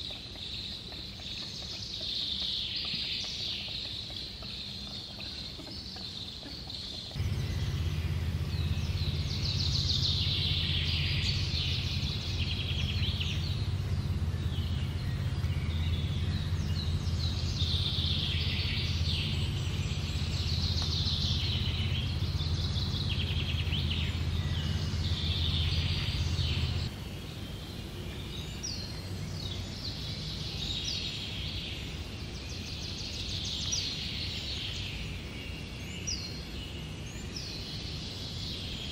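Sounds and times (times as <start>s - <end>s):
songbirds singing and chirping: 0.0s - 38.9s
steady low hum: 7.1s - 31.0s.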